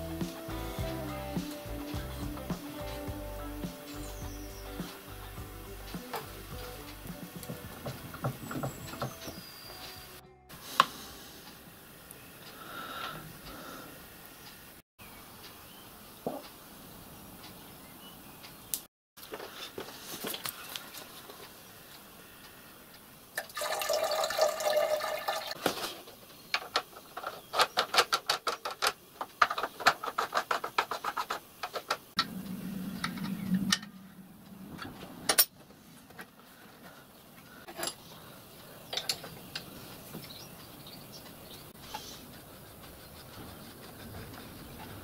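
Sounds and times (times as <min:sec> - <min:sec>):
liquid pouring and glugging: 0:23.4 - 0:25.6
low hum: 0:32.2 - 0:36.1.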